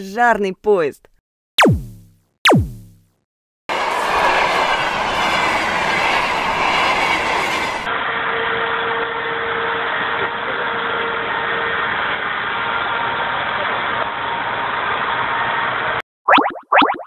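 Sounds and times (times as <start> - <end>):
held tone: 1.6 - 3.1.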